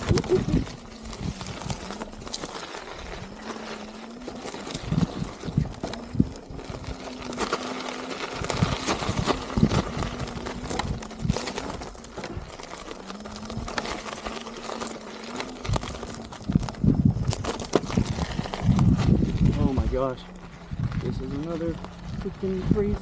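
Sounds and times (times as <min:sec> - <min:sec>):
electric motor humming: 0:00.0 - 0:22.6
tire crunching over stones: 0:00.0 - 0:23.0.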